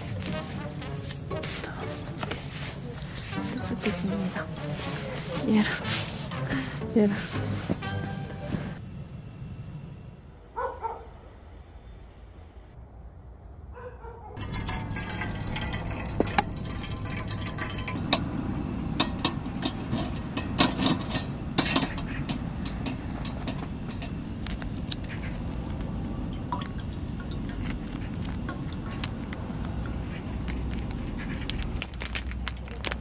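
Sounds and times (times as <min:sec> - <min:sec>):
gas stove burning: 0:14.4 - 0:33.0
water ticking and popping in pot: 0:14.4 - 0:33.0.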